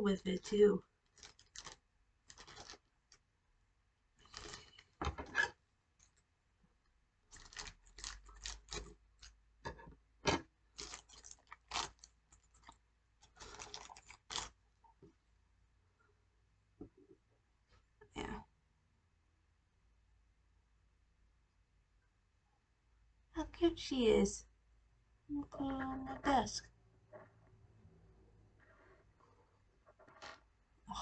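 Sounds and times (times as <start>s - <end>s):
packaging rustling and crinkling: 1.1s - 3.2s, 4.2s - 5.0s, 7.3s - 9.4s, 10.8s - 14.6s.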